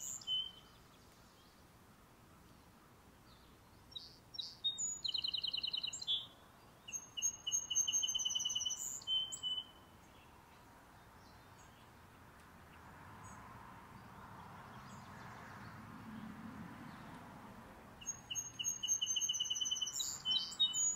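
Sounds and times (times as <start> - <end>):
songbird trilling: 0.0 - 0.7, 3.9 - 6.3, 6.9 - 9.8, 18.0 - 20.9
faint outdoor background noise: 0.0 - 20.9.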